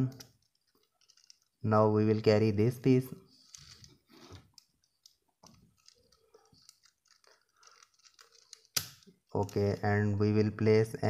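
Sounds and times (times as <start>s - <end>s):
plastic puzzle clicks and scrapes: 0.1s - 1.6s, 3.3s - 9.8s.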